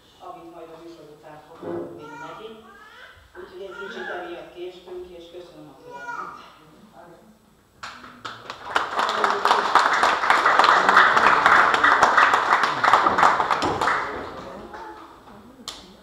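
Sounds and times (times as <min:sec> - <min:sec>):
audience applauding: 0:07.8 - 0:15.1.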